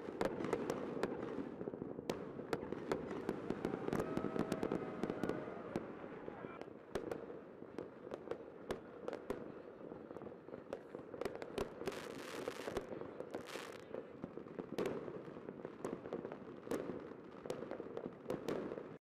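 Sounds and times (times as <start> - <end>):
fireworks bangs and pops: 0.0 - 19.0
fireworks hissing crackle: 10.6 - 17.3.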